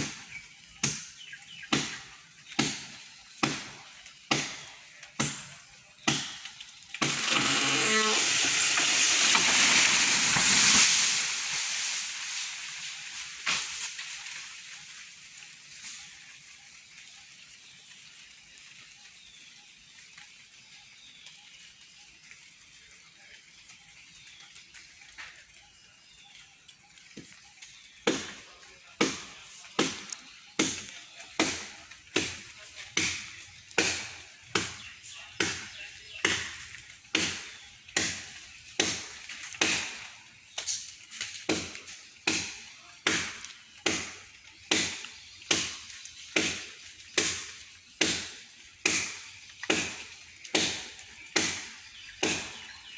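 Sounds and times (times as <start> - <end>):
faint outdoor background: 0.0 - 52.9
blade chopping into tree trunk: 0.8 - 11.0, 29.0 - 40.1, 46.4 - 52.8.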